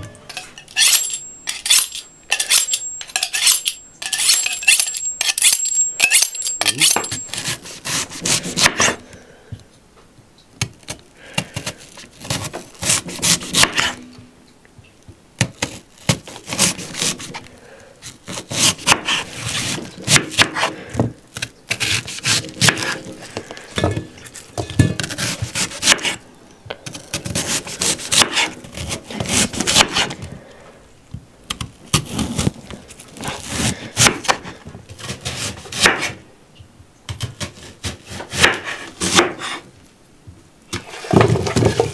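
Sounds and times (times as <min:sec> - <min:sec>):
knife slicing onion on board: 0:00.3 - 0:09.0, 0:10.6 - 0:14.0, 0:15.4 - 0:17.4, 0:18.0 - 0:20.8, 0:21.4 - 0:26.2, 0:26.9 - 0:30.2, 0:33.2 - 0:36.2, 0:37.1 - 0:39.7.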